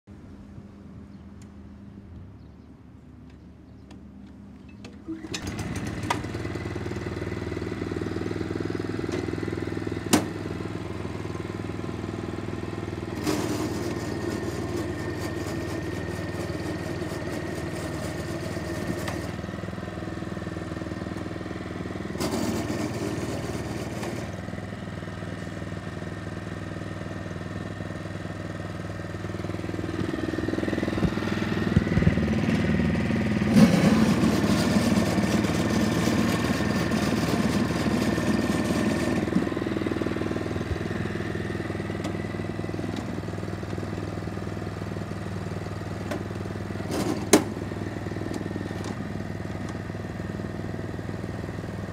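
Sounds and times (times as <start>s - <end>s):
small engine running: 5.0s - 51.9s.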